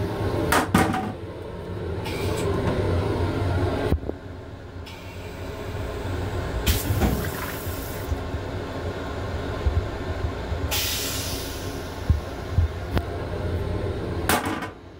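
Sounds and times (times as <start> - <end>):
low train rumble: 0.0 - 14.9
toilet flushing water rush: 6.6 - 8.2.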